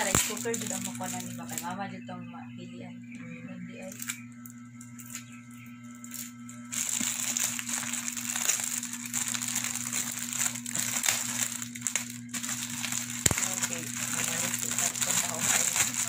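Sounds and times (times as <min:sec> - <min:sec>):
gift wrap crinkling and tearing: 0:00.0 - 0:01.7, 0:06.0 - 0:16.0
steady low hum: 0:00.0 - 0:16.0.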